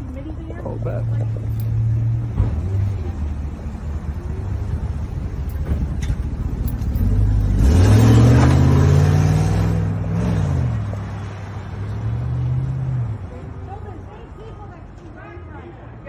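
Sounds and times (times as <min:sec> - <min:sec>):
car engine revving: 0:00.5 - 0:13.2.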